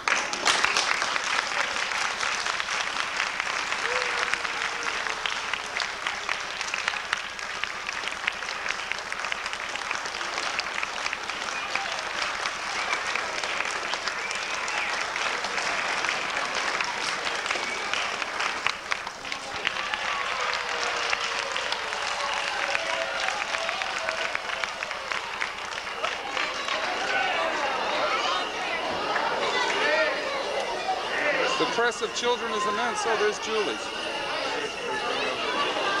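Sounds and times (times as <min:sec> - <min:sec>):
audience applauding: 0:00.0 - 0:36.0.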